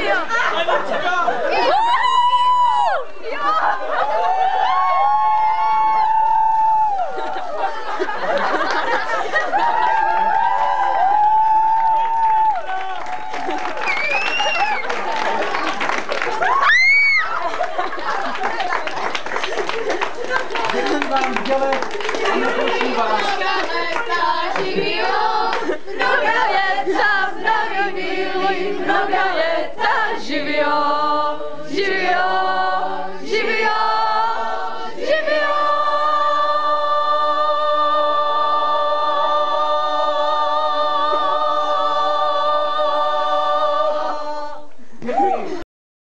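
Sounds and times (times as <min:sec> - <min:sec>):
group singing unaccompanied: 0:00.0 - 0:01.6, 0:22.0 - 0:44.8.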